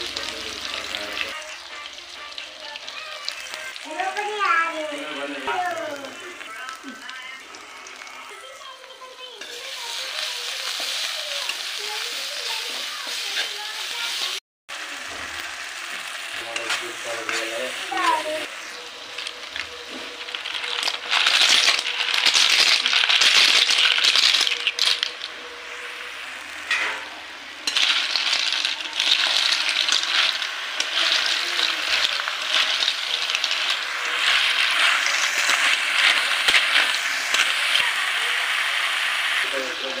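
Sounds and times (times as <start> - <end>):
snail shells clattering in metal pan: 20.3 - 25.3, 27.7 - 37.8.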